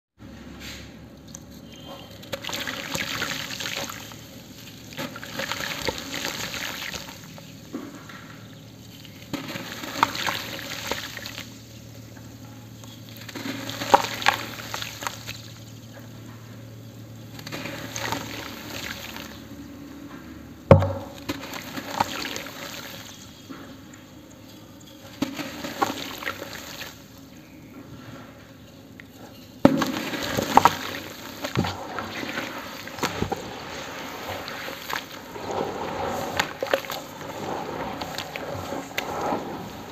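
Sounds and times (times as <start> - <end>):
water sloshing: 1.3 - 19.6, 20.7 - 27.6, 28.9 - 39.9
dry cement crumbling: 1.4 - 16.4, 17.2 - 19.5, 20.7 - 27.6, 29.0 - 39.9
pieces splashing into water: 2.1 - 16.1, 17.3 - 19.5, 20.7 - 23.5, 24.8 - 27.2, 29.6 - 39.9
sharp knock: 20.7 - 21.1.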